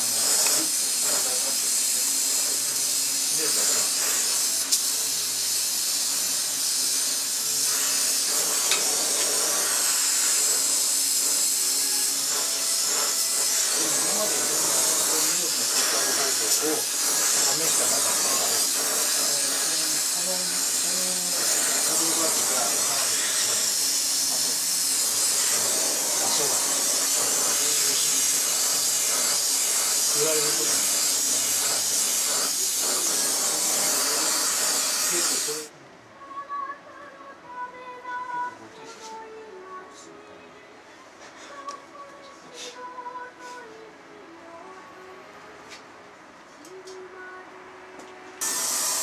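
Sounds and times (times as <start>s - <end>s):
gas torch flame hissing: 0.0s - 35.7s, 48.4s - 49.0s.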